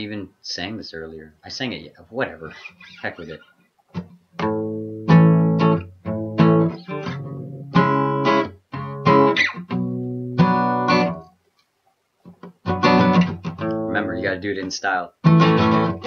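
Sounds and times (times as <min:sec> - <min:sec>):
acoustic guitar strummed chords: 0:04.0 - 0:11.3, 0:12.3 - 0:14.4, 0:15.2 - 0:16.0.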